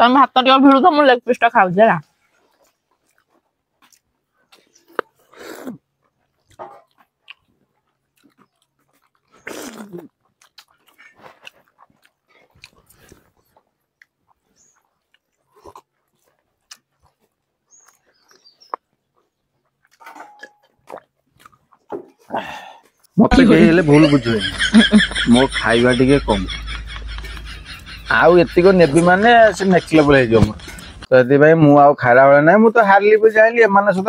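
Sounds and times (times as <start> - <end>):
people chewing and lip-smacking: 2.0 - 31.1
breathy bursts: 22.3 - 22.8.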